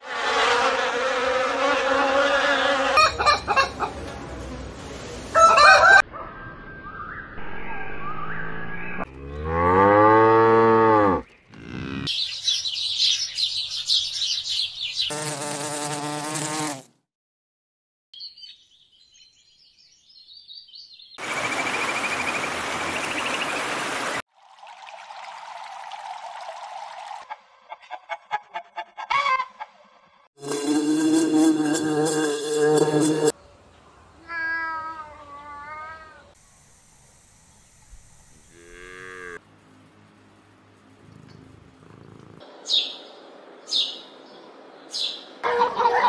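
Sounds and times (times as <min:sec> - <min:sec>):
cow mooing: 0:09.1 - 0:12.1, 0:38.5 - 0:39.4
sparrows chirping: 0:11.2 - 0:15.4, 0:42.6 - 0:45.4
honeybees buzzing: 0:15.1 - 0:16.8, 0:30.4 - 0:33.4.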